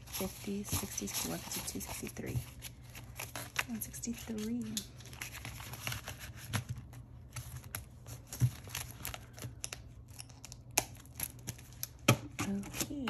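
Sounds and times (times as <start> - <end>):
banknotes rustling: 0.0 - 9.6.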